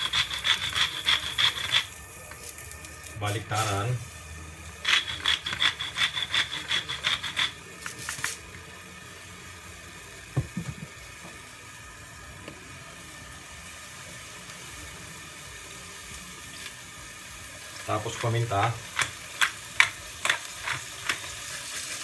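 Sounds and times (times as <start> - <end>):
salt grinder rattling grind: 0.0 - 1.9, 4.8 - 8.4, 18.1 - 22.0.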